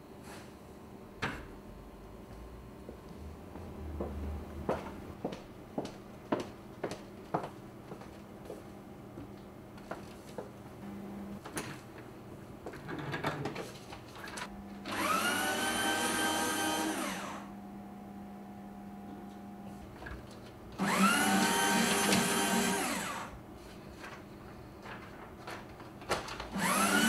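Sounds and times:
paper shredder motor running: 0:14.7 - 0:17.5, 0:20.8 - 0:23.4, 0:26.5 - 0:27.0
paper rustling: 0:23.6 - 0:26.6.

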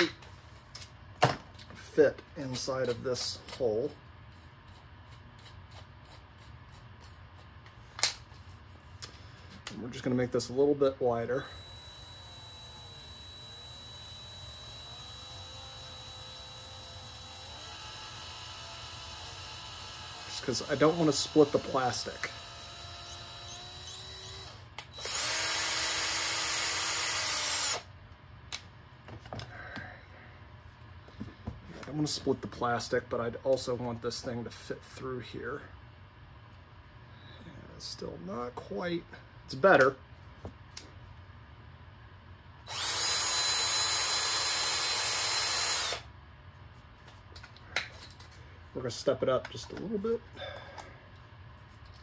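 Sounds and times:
cordless drill boring plastic: 0:11.4 - 0:27.9, 0:42.7 - 0:46.0.

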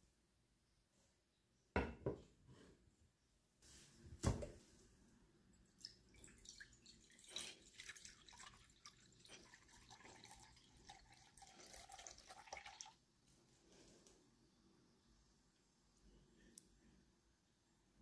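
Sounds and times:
water trickling into glass jug: 0:05.6 - 0:13.0.

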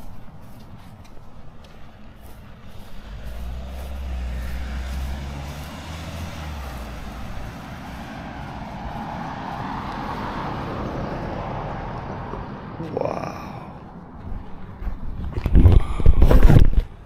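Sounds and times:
approaching vehicle tyre noise: 0:00.0 - 0:17.0
car driving past: 0:02.0 - 0:14.8.

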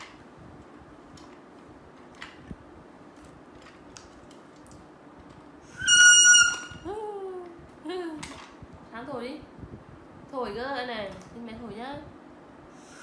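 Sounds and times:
plastic toy whistle: 0:05.7 - 0:06.8.

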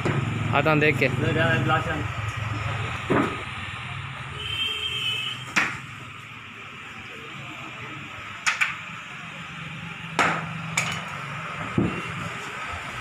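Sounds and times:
sharp knocks on wooden frame: 0:05.5 - 0:05.8.

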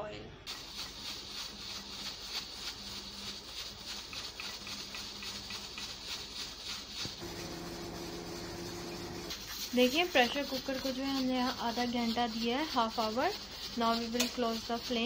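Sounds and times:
steady low hum: 0:00.0 - 0:15.0
pressure cooker steam hissing: 0:07.0 - 0:15.0.

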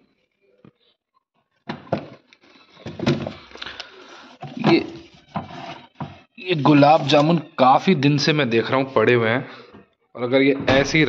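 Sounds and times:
containers knocking and sliding: 0:02.8 - 0:07.4.

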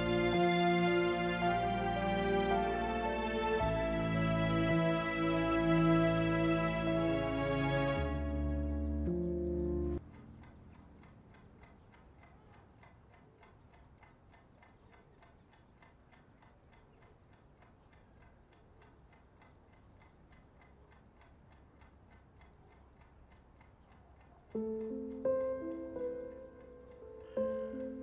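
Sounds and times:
clock ticking: 0:09.0 - 0:28.0.

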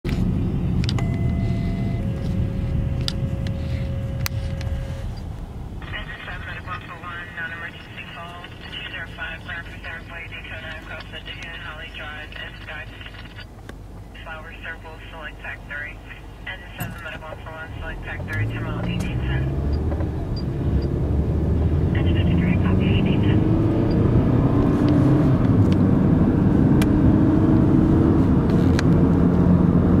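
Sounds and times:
car road and engine rumble: 0:00.0 - 0:30.0
thin steady tone: 0:01.0 - 0:05.3.

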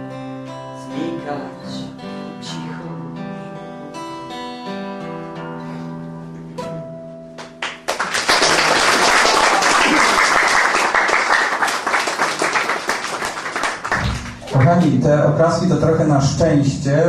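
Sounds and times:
acoustic guitar chords: 0:00.0 - 0:08.0, 0:12.9 - 0:16.4
audience applause: 0:07.6 - 0:14.9.

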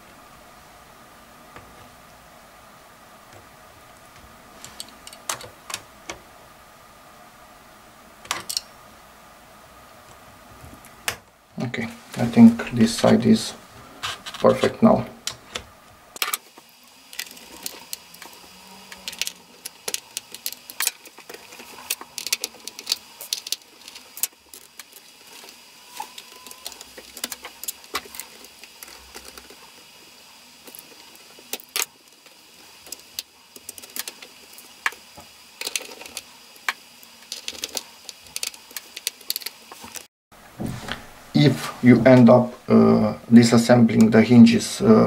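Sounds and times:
small metallic clicks and rattles: 0:35.6 - 0:40.1.

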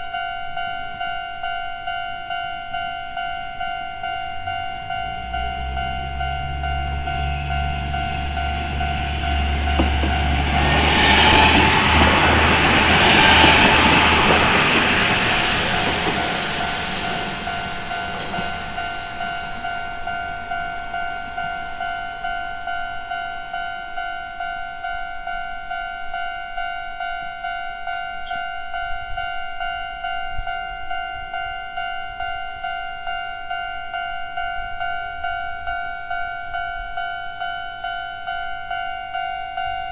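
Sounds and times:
high squeal of train: 0:00.0 - 0:39.9
level crossing alarm dinging: 0:00.0 - 0:39.9
train wheels rushing: 0:04.5 - 0:22.0.

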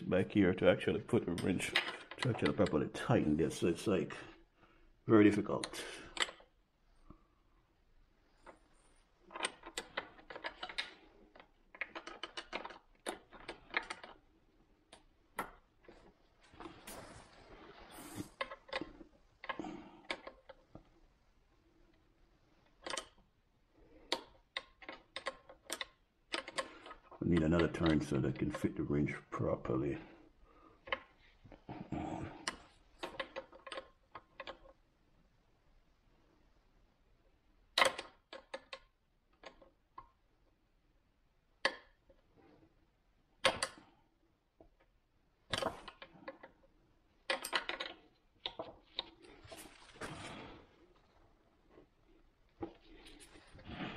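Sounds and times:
rustling and rubbing: 0:15.8 - 0:19.5, 0:48.7 - 0:53.9.

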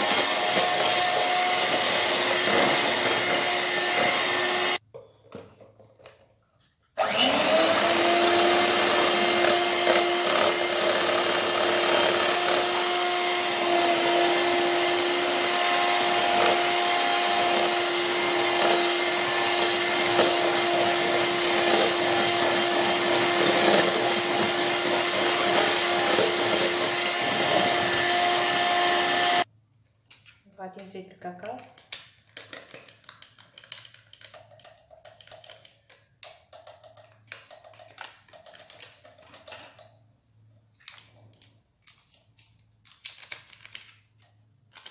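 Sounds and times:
electric hand mixer whining: 0:00.0 - 0:04.8, 0:07.0 - 0:29.5.

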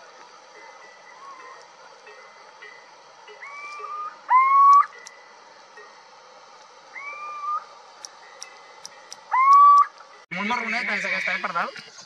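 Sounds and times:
owl mewing hoots: 0:00.6 - 0:02.4, 0:03.3 - 0:05.0, 0:06.9 - 0:07.7, 0:09.3 - 0:09.9.

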